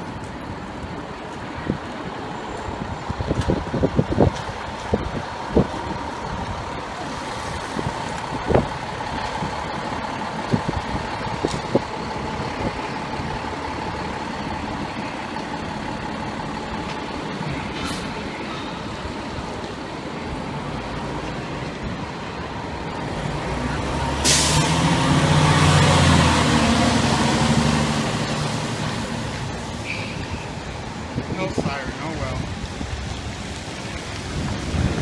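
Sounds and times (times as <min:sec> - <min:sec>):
diesel engine idling: 0:05.2 - 0:31.3
air brake release hiss: 0:24.2 - 0:24.7.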